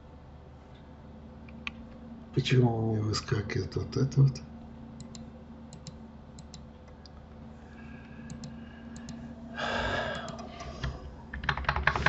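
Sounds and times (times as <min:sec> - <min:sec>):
computer hum: 0:00.0 - 0:12.0
breathy exhale: 0:07.6 - 0:11.0.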